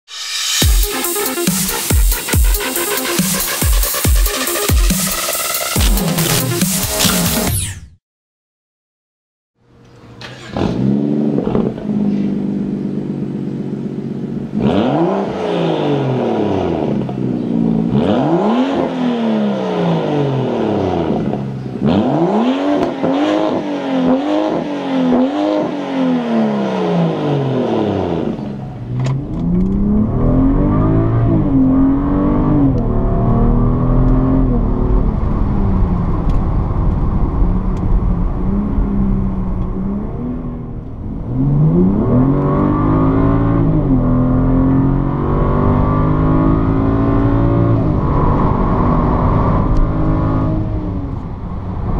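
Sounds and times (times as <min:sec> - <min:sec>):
car engine revving: 0:00.6 - 0:07.7, 0:09.6 - 0:51.9
engine drone inside car: 0:09.6 - 0:15.0, 0:28.1 - 0:51.9.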